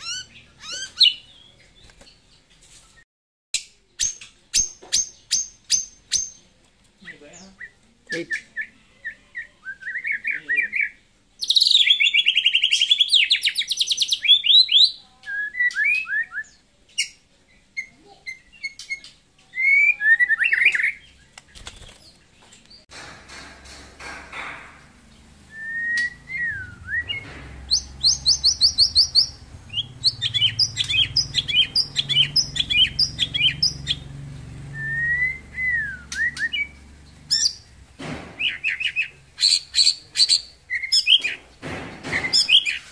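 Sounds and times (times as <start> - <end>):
bird singing trills and whistles: 7.1 - 21.4, 25.4 - 37.7, 38.4 - 41.4, 42.1 - 42.9.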